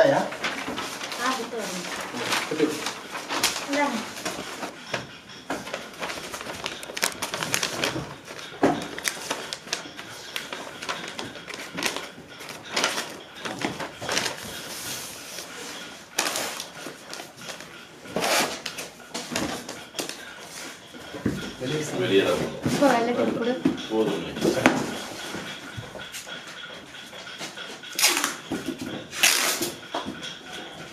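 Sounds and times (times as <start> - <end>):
paper rustling and crinkling: 0.0 - 4.8, 5.5 - 20.3.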